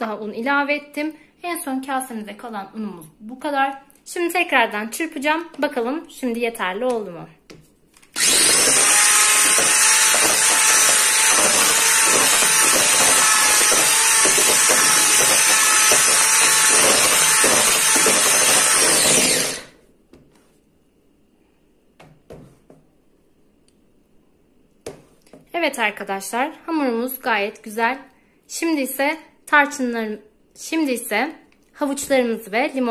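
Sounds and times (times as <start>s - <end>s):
electric hand mixer whine: 8.2s - 19.8s.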